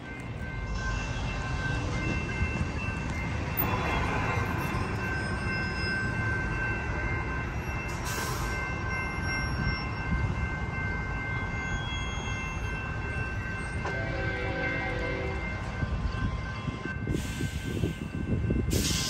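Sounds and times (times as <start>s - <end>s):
crossing warning bell ringing: 0.0s - 19.0s.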